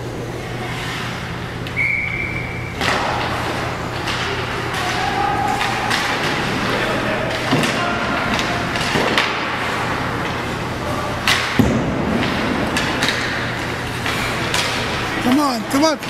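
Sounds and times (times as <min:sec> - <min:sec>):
hockey sticks and puck knocking: 0:02.8 - 0:10.4, 0:11.2 - 0:16.0.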